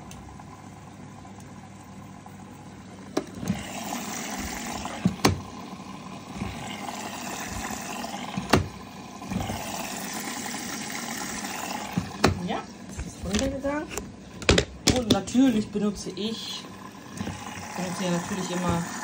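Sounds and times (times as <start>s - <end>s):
water sloshing in washing machine: 1.5s - 19.0s
plastic drawer clicks and knocks: 8.4s - 8.8s.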